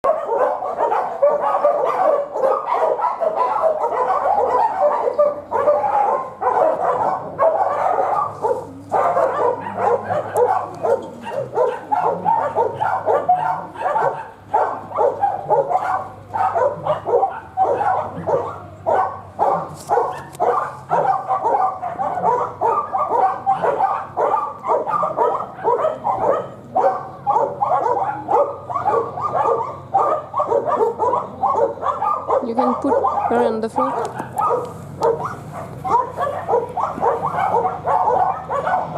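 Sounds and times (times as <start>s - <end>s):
dogs barking: 0.0s - 38.9s.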